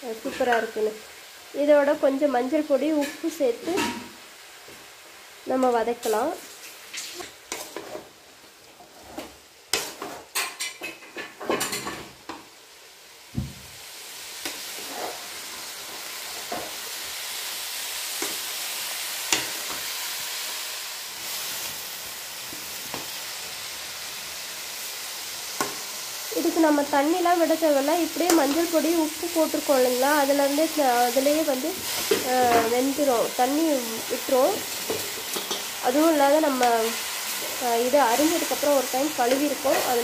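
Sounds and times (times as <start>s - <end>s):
cabbage sizzling: 0.0s - 40.0s
spatula scraping against pan: 6.6s - 8.1s, 8.8s - 11.9s.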